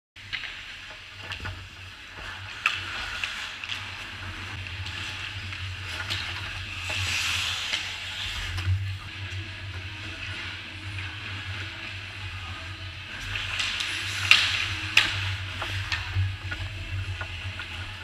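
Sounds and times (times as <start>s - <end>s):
steady low hum: 0.9s - 18.0s
skate blades scraping ice: 2.2s - 12.3s, 13.0s - 18.0s
hockey sticks and puck clicking: 2.5s - 4.0s, 13.2s - 18.0s.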